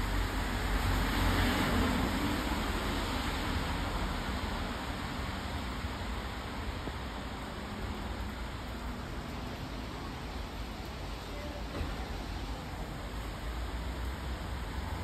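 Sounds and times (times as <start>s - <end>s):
steady traffic hiss: 0.0s - 15.0s.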